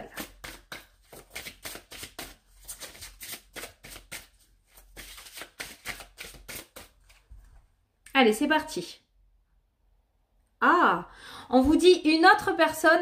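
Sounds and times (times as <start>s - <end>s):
cards being shuffled: 0.1s - 7.3s.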